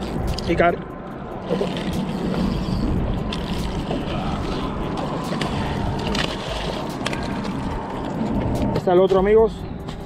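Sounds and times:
wind buffeting microphone: 0.0 - 10.0
fish splashing: 1.4 - 8.6.

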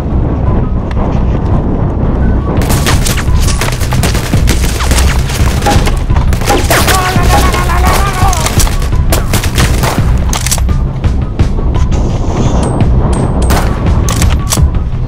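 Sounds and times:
background music: 0.0 - 15.0
rapid gunfire sound effects: 2.6 - 10.3
person crying out: 6.7 - 8.6.

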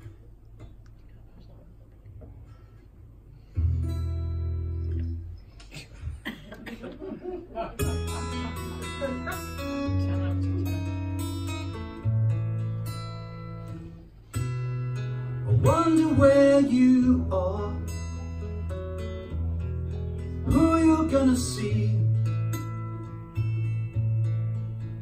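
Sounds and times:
acoustic guitar strumming: 3.5 - 5.4, 7.8 - 25.0.

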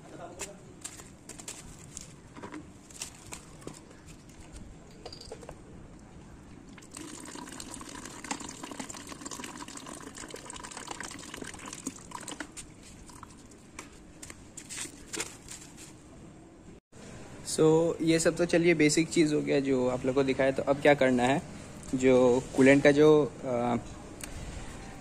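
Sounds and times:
drips: 6.7 - 13.6
coolant trickling into bucket: 6.8 - 13.5.

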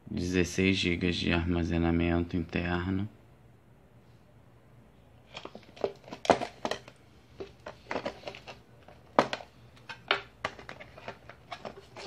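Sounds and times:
plastic box handling clicks: 5.3 - 12.0.

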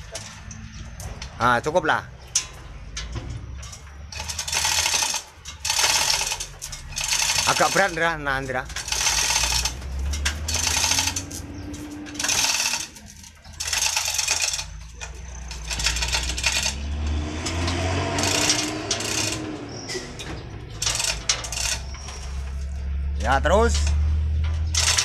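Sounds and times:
chain rattling: 0.0 - 25.0
ratchet clicking: 2.3 - 25.0.

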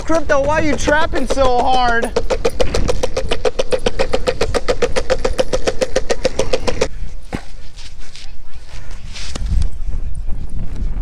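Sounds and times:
longboard wheels rolling on concrete: 0.0 - 8.4
light scuffs and clicks: 7.2 - 10.0.

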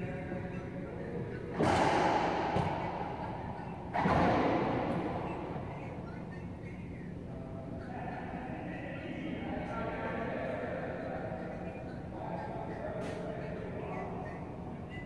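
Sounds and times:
racquetball shots echoing: 1.5 - 6.5.

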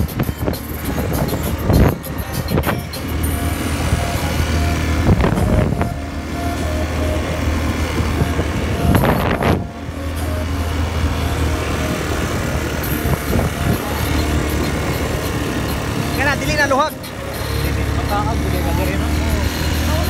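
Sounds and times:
wind buffeting microphone: 0.0 - 16.1
quad bike engine running: 0.0 - 20.0.

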